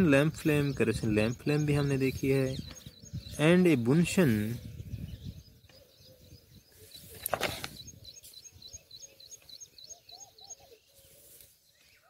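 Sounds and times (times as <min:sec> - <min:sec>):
lower arching bird calls: 0:00.0 - 0:12.0
small bird chirping: 0:00.1 - 0:12.0
brief rustle: 0:07.0 - 0:08.4.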